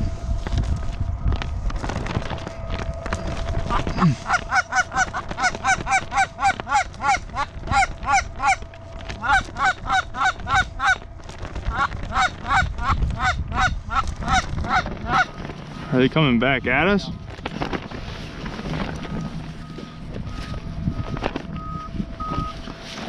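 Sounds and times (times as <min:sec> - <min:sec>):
goose honking: 0:03.6 - 0:11.1, 0:11.7 - 0:16.0.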